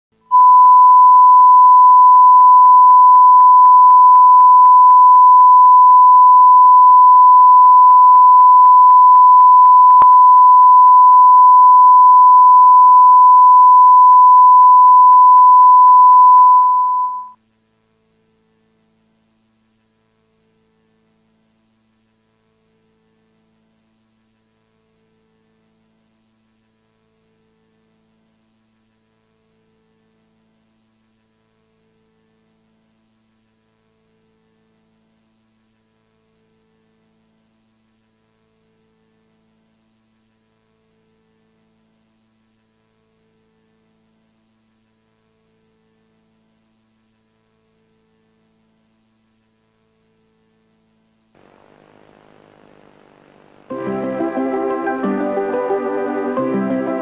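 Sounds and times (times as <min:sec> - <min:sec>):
faint hum: 0:00.2 - 0:54.8
steady test tone: 0:00.3 - 0:17.4.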